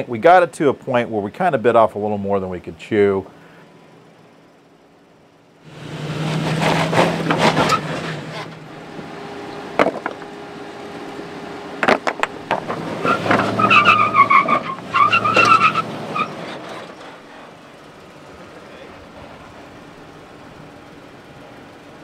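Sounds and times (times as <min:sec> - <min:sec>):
engine revving: 0:05.6 - 0:17.6
tyres squealing against rock: 0:06.1 - 0:08.6, 0:12.5 - 0:17.5
tyres scrubbing and spinning on rock: 0:06.3 - 0:08.5
rocks clacking: 0:09.8 - 0:10.3, 0:11.8 - 0:15.6.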